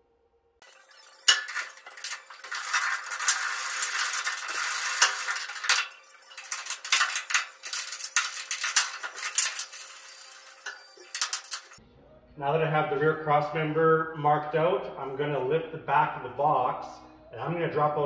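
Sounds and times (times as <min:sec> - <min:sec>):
ratchet clicking: 0:00.6 - 0:11.8.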